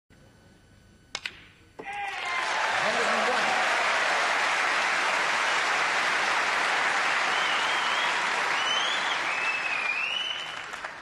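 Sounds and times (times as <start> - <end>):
audience applauding: 2.1 - 11.0
high wavering whistle: 7.3 - 10.6.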